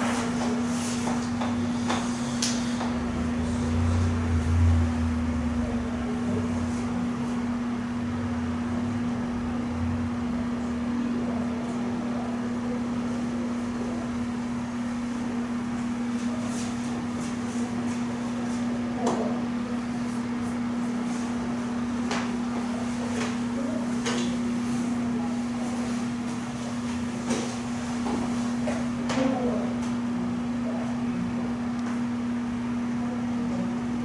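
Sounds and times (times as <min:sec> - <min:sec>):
low room hum: 0:00.0 - 0:34.0.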